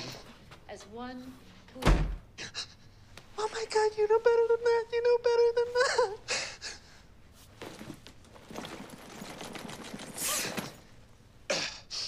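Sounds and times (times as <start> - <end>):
leather bag rustling and knocking: 7.6 - 10.9.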